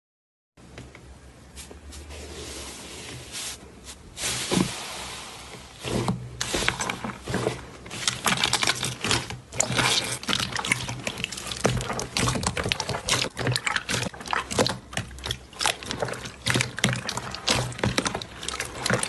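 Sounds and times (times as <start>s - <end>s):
hands squishing slime: 6.5s - 19.0s.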